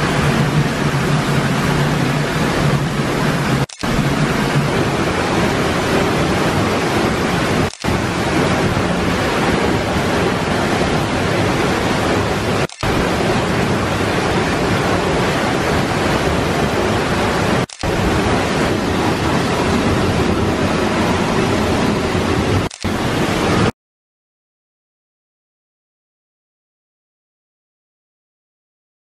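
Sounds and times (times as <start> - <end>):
waterfall rushing: 0.0 - 23.7.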